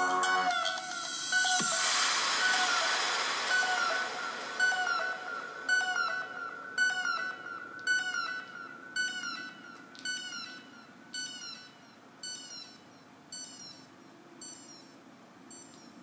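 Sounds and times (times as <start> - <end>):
electronic falling pitch sound: 0.0 - 10.7
held electronic tone: 0.0 - 16.0.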